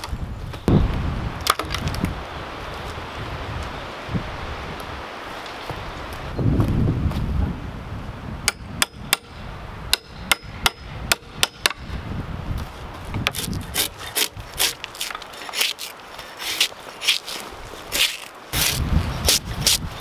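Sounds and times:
drawknife rasping on wood: 0:13.3 - 0:20.0.

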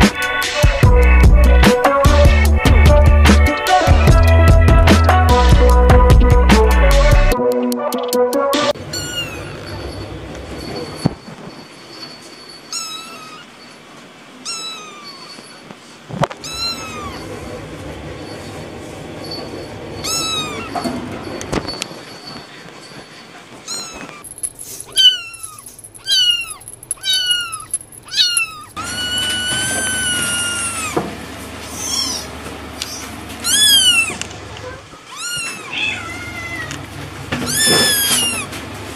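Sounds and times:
kittens meowing: 0:08.8 - 0:09.9, 0:12.7 - 0:13.6, 0:14.4 - 0:15.6, 0:16.4 - 0:17.4, 0:20.0 - 0:20.9, 0:23.6 - 0:24.2, 0:24.8 - 0:31.0, 0:31.7 - 0:38.5.

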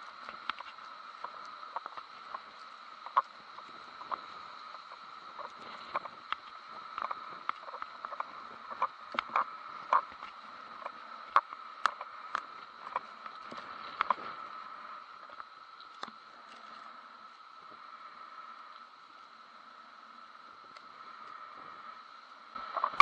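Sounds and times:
muffled storm wind: 0:00.0 - 0:23.0.

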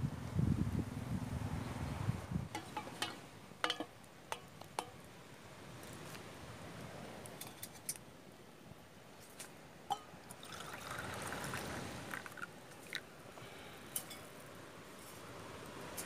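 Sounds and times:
campfire crackling and popping: 0:10.2 - 0:13.1
liquid pouring into a metal mug: 0:10.3 - 0:13.0.

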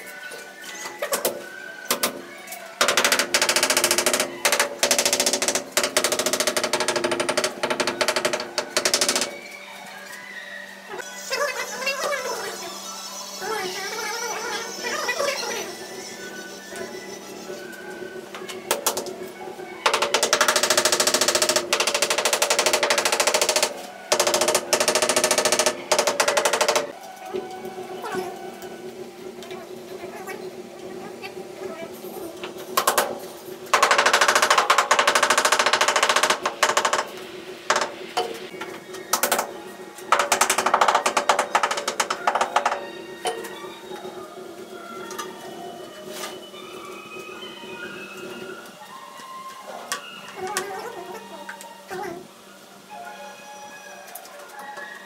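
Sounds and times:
tile vibrator rattling: 0:02.8 - 0:09.5, 0:19.9 - 0:27.0, 0:32.0 - 0:45.3.

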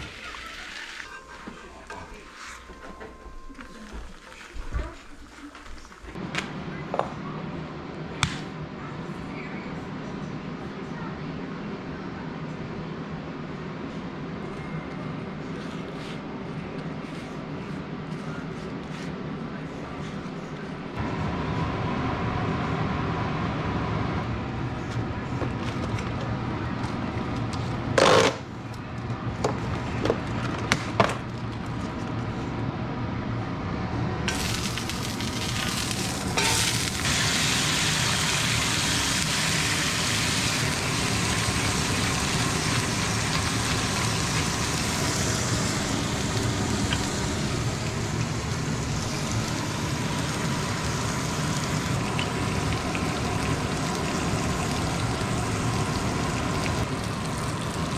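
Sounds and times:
beef sizzling in a skillet: 0:34.3 - 0:57.9.

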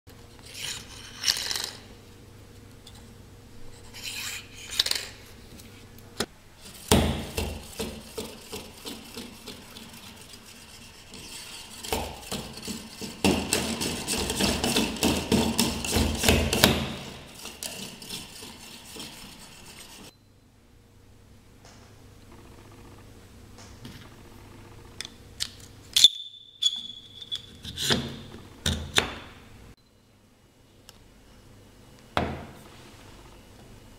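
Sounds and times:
magnets scraping along metal rod: 0:00.4 - 0:01.9, 0:03.7 - 0:05.2, 0:08.0 - 0:15.0.

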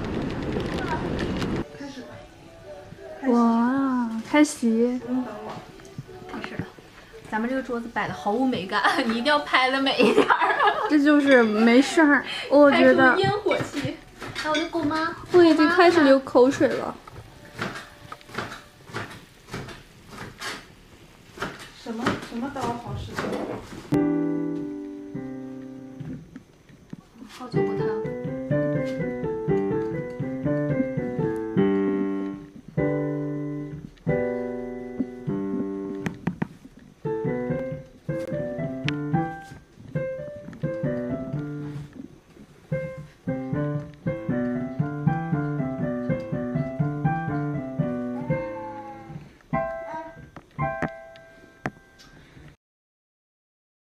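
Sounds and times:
solo piano playing: 0:24.0 - 0:26.2, 0:27.6 - 0:36.3, 0:37.0 - 0:51.9.

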